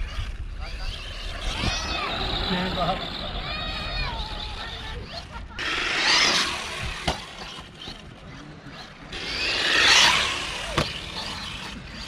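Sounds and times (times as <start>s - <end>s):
toy truck electric motor whining: 0.0s - 12.0s.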